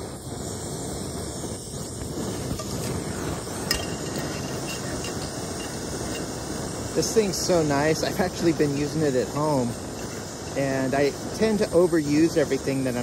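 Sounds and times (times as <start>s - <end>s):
gas stove flame hissing: 0.0s - 13.0s
frying pan clinking on metal: 3.6s - 6.3s.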